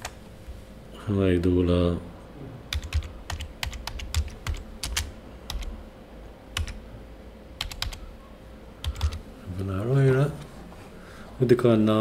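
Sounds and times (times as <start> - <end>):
keyboard typing: 2.7 - 5.7, 6.6 - 6.8, 7.6 - 8.0, 8.8 - 9.2.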